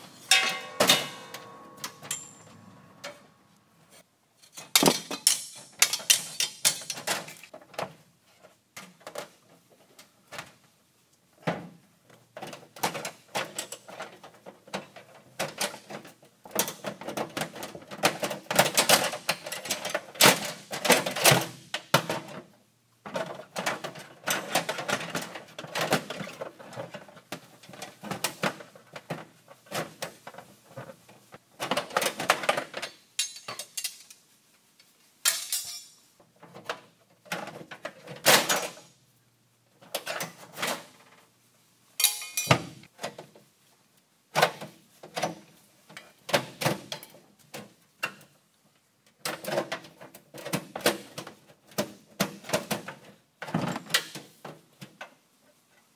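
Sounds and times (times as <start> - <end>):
metal tools clinking and rattling: 0.0 - 3.3, 4.4 - 7.5, 32.5 - 34.2, 35.2 - 36.1, 42.0 - 42.8.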